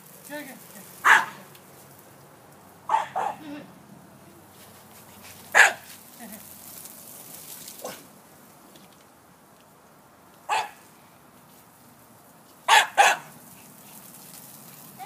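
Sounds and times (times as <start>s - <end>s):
puppy barking: 1.0s - 1.4s, 2.9s - 3.4s, 5.5s - 5.9s, 10.5s - 10.8s, 12.7s - 13.3s.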